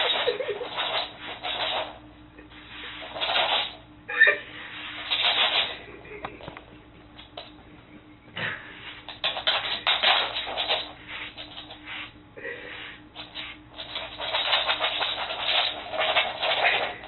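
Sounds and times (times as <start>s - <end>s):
brush scratching through dog fur: 0.0s - 3.8s, 4.6s - 5.8s, 8.8s - 17.0s.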